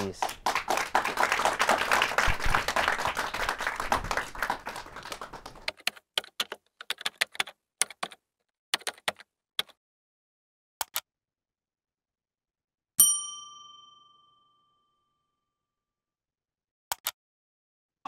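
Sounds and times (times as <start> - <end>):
audience applause: 0.0 - 5.8
computer keyboard typing: 5.7 - 8.2, 8.8 - 9.8.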